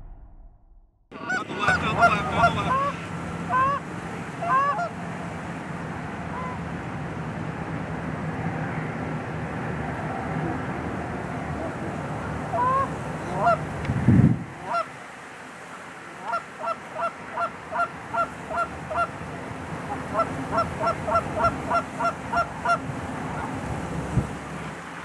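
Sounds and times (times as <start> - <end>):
loud low thump: 0.0 - 1.0
low rumble: 0.0 - 2.1
geese honking: 1.1 - 5.0, 6.3 - 6.6, 12.5 - 13.6, 14.6 - 14.9, 16.2 - 19.2, 19.8 - 23.6.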